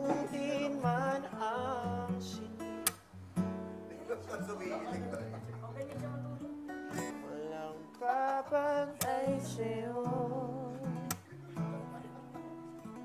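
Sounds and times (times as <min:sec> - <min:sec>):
person singing: 0:00.0 - 0:02.7, 0:07.0 - 0:11.4
acoustic guitar music: 0:00.0 - 0:13.0.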